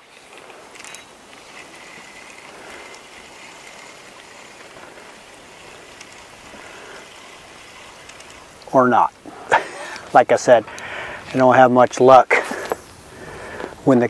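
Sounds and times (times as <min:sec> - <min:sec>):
light wind: 0:00.0 - 0:14.0
small waves lapping: 0:00.0 - 0:14.0.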